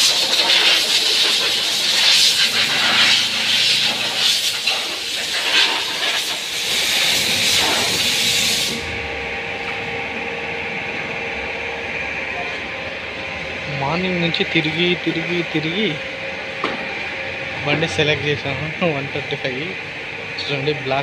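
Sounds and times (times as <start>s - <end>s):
high-pressure jet hissing: 0.0s - 9.0s
steady machine hum: 0.0s - 21.0s.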